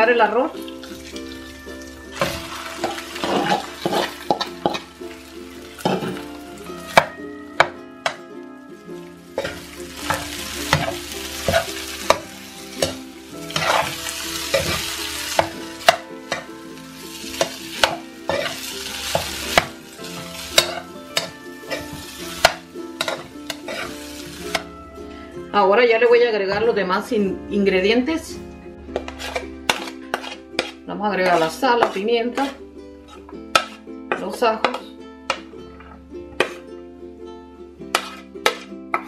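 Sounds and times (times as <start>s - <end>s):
rice sizzling in frying pan: 0.6s - 7.1s, 8.8s - 24.7s
spatula knocking and scraping pan: 2.2s - 4.9s, 9.3s - 16.5s, 17.3s - 24.7s, 28.9s - 36.6s, 37.9s - 39.0s.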